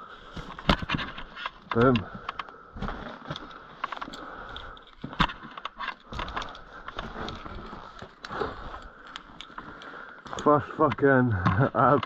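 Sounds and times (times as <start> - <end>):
carabiners clicking and clinking: 3.3 - 12.0.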